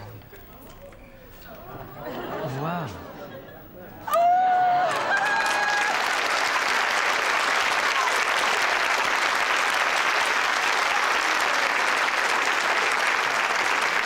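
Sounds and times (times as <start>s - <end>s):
audience applauding: 4.1s - 14.0s.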